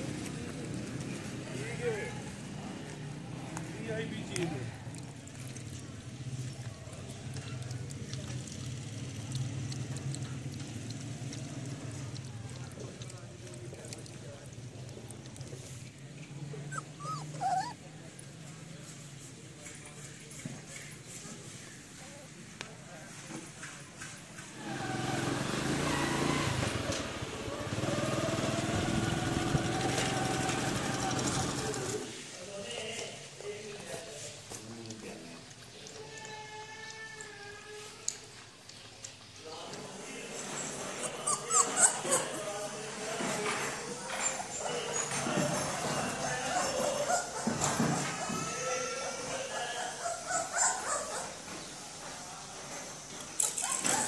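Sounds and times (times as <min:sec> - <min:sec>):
puppy lapping water: 0:02.2 - 0:19.8
water trickling into hand: 0:04.7 - 0:16.7
motorcycle engine running: 0:24.6 - 0:32.1.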